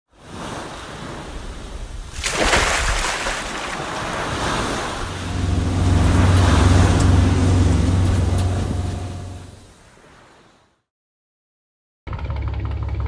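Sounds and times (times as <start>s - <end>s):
ocean waves washing in: 0.1s - 10.8s
low engine hum: 3.9s - 9.7s.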